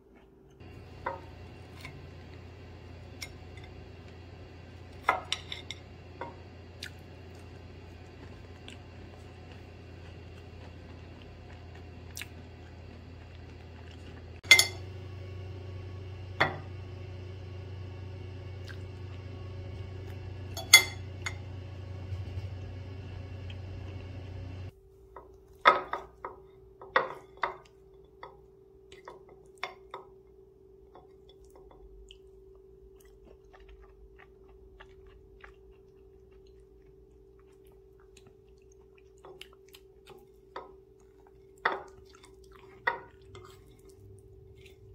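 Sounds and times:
steady low hum: 0.5 - 24.9, 31.8 - 44.9
fork clinking and scraping on plate: 5.0 - 6.4, 14.4 - 14.8.

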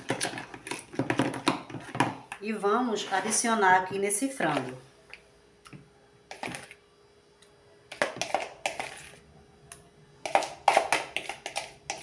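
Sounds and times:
metal spoon scraping plastic tub: 7.9 - 9.2.

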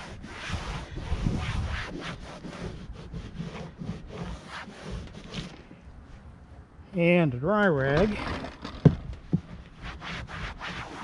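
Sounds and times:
cloth rag scrubbing a roof: 0.0 - 5.6, 9.7 - 11.0.

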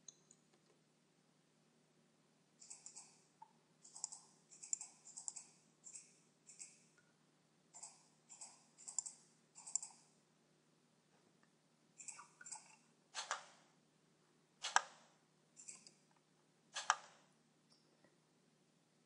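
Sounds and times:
faint steady hum: 0.0 - 19.0
mouse button clicking: 16.8 - 17.1.

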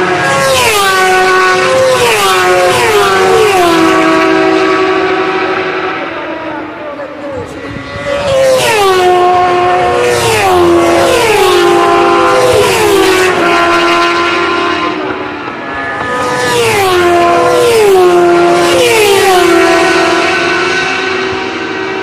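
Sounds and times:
racing motorcycles passing fast: 0.0 - 22.0.

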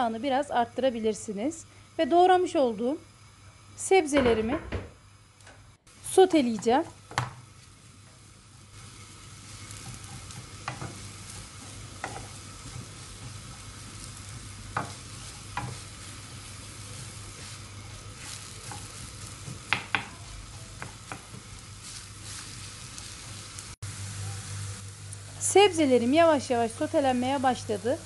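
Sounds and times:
vegetables sizzling in oil: 5.9 - 28.0
wooden spoon clacking on pan: 9.8 - 11.0, 18.6 - 20.2, 20.8 - 21.5.

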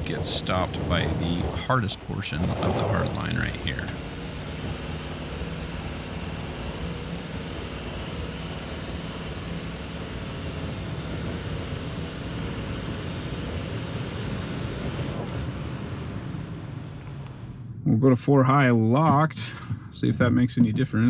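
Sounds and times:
even rushing noise: 0.0 - 6.4
car engine running: 0.0 - 18.0.

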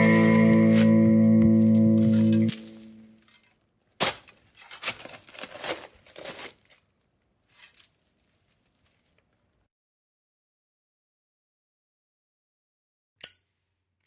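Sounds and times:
music ringing away: 0.0 - 3.2
rustling crinkling noise: 0.0 - 9.7.

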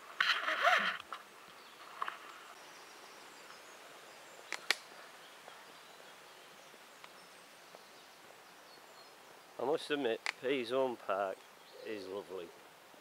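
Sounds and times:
faint outdoor background noise: 0.0 - 13.0
sharp clicks: 4.5 - 4.8.

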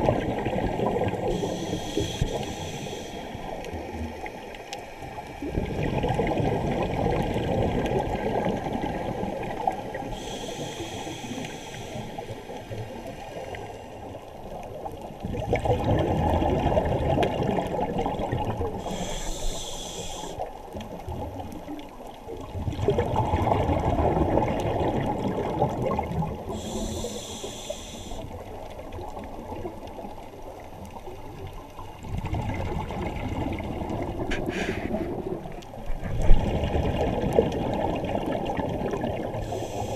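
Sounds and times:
exhaled bubbles underwater: 0.0 - 39.9
regulator hiss on inhale: 1.2 - 4.5, 10.0 - 14.2, 18.8 - 20.5, 26.4 - 28.6, 34.3 - 35.2, 39.4 - 39.9.

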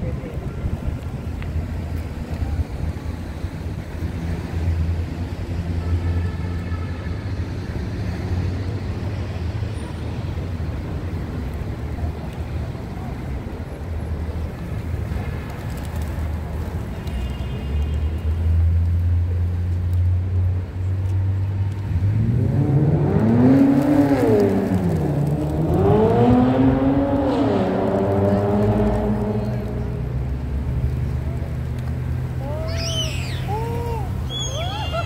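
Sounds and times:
road traffic rumble: 0.0 - 35.0.

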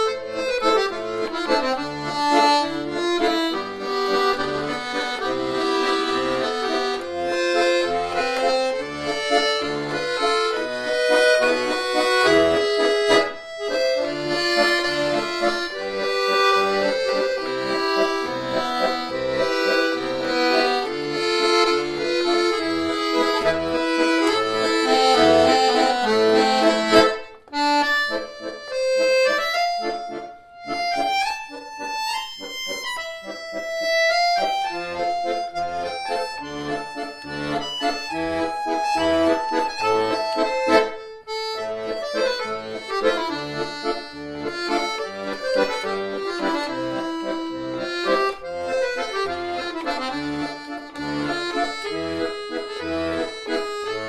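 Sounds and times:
accordion chords: 0.0 - 54.0
bouncing bass: 0.3 - 28.8.

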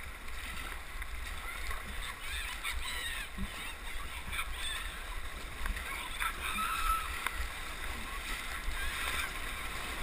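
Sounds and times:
paddle strokes: 0.0 - 10.0
water splashing against hull: 0.0 - 10.0
whitewater rapids rushing: 0.0 - 10.0
high-pitched shout: 5.9 - 7.2.

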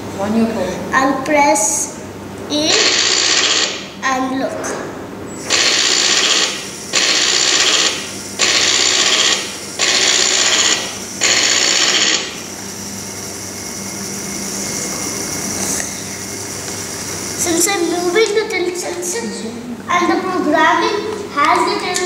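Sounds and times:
small electric motor turning gears: 2.7 - 3.8, 5.4 - 17.6.

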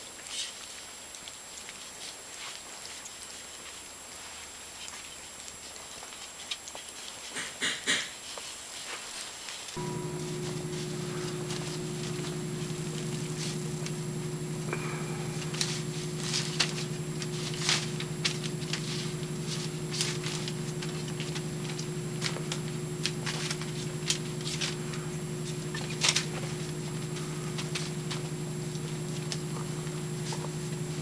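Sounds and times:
steady low hum: 9.8 - 31.0.

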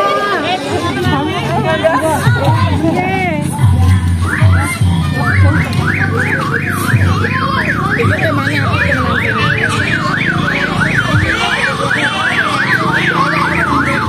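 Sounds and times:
electronic siren yelping: 4.0 - 14.0.

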